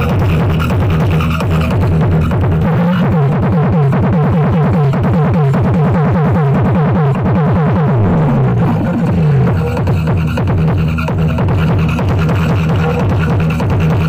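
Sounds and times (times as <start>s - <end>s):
deep bass: 0.0s - 14.0s
electronic dance music: 0.0s - 14.0s
falling synth sweeps: 7.5s - 10.4s.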